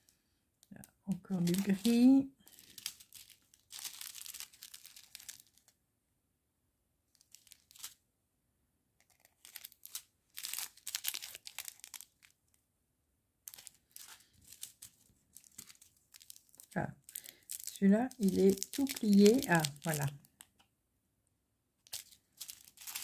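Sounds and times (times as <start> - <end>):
plastic bags crinkling: 1.1 - 5.7, 7.2 - 8.0, 9.2 - 12.3, 13.5 - 20.5, 21.8 - 23.0.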